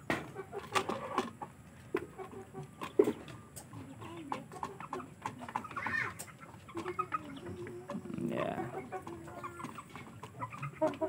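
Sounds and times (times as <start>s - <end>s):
chickens clucking: 0.0s - 11.0s.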